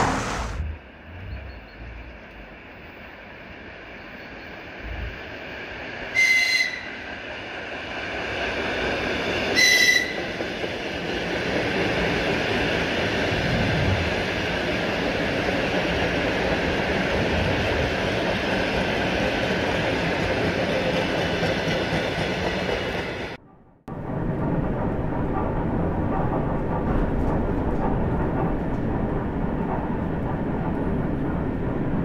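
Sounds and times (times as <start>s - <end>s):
high-pitched train horn blasts: 6.1s - 7.0s, 9.6s - 10.2s
train cars rolling past: 6.8s - 32.0s.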